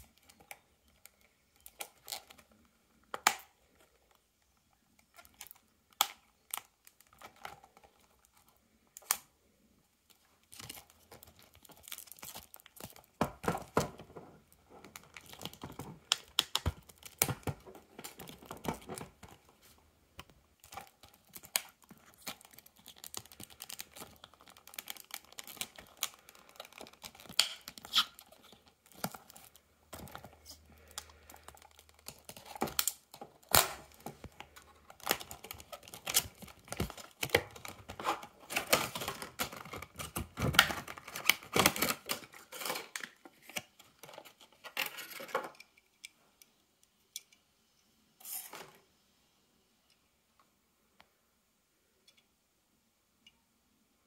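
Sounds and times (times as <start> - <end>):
plastic packaging crackling: 10.1 - 45.5.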